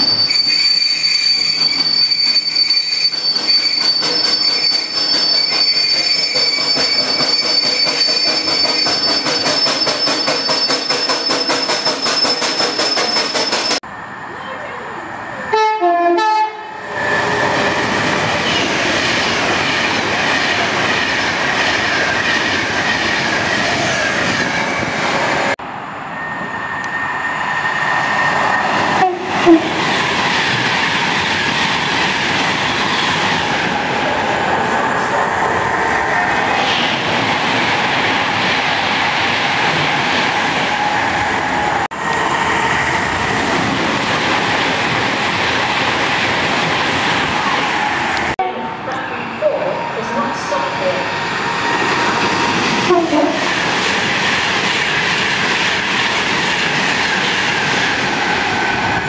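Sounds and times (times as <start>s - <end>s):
train wheels rushing on rails: 0.0s - 13.9s, 16.6s - 48.4s, 49.8s - 59.0s
train horn blast: 15.5s - 16.8s, 29.0s - 29.8s, 52.8s - 53.5s.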